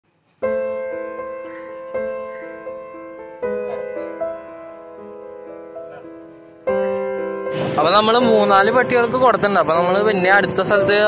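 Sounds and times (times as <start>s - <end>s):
slow piano chords: 0.4s - 11.0s.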